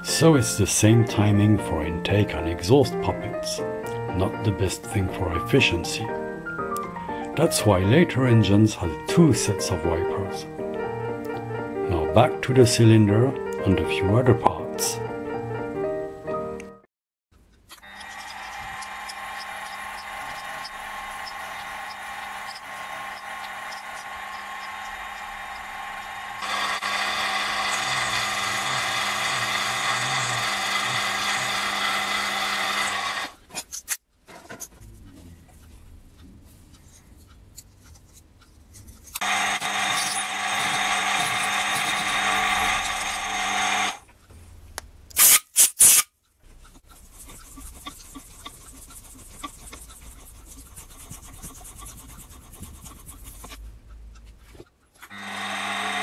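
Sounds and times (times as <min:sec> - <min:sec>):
milling machine whine: 0:17.8 - 0:33.4, 0:39.2 - 0:44.0, 0:55.0 - 0:56.0.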